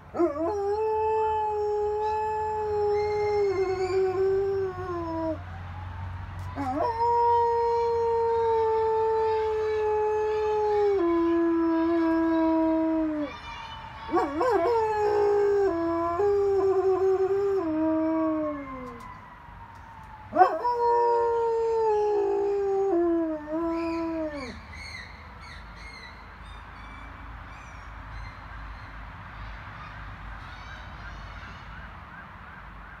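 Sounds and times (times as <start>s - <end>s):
dog howling: 0.2s - 5.4s, 14.1s - 19.1s, 20.3s - 24.6s.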